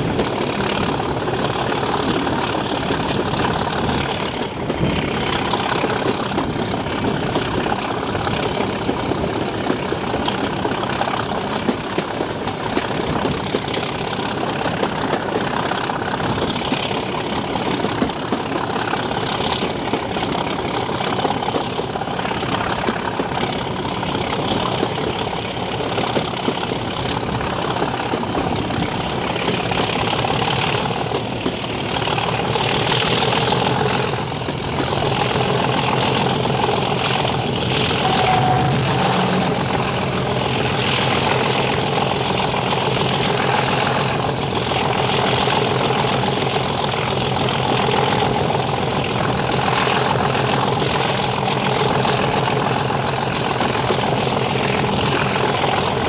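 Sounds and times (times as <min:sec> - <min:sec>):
diesel locomotive engine: 0:00.0 - 0:56.0
turbocharger whistle: 0:38.0 - 0:41.0.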